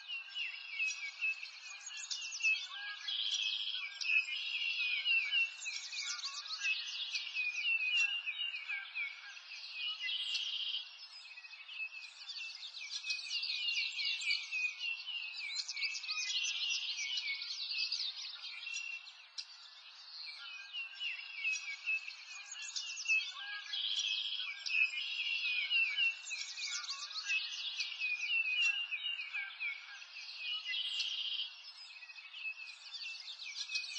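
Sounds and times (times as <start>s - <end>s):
birds chirping and trilling: 0.0s - 33.9s.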